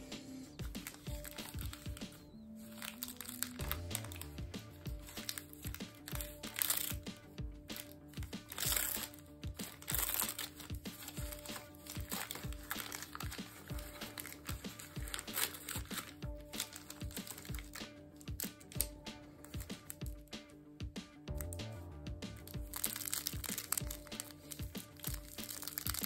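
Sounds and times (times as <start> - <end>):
background music: 0.0 - 26.0
paper wrapper crinkling: 0.6 - 20.2, 22.4 - 26.0.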